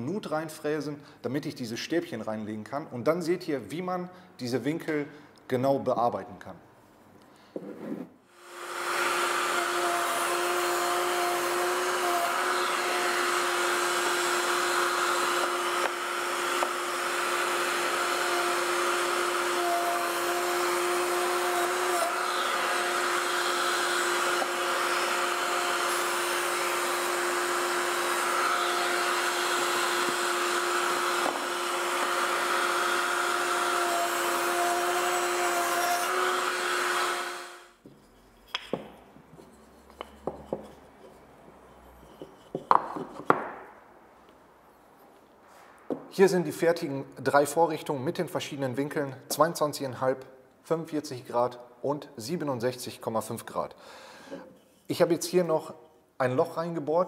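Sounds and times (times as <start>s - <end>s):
router whining: 8.4s - 37.9s.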